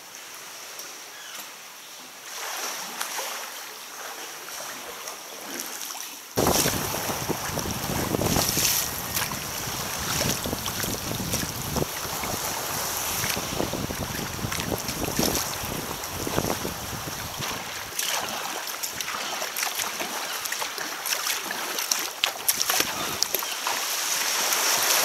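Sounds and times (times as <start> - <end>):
water lapping in a cave: 0.0 - 25.0
choppy sea: 2.2 - 25.0
gusty wind on microphone: 6.4 - 18.0, 22.6 - 23.2.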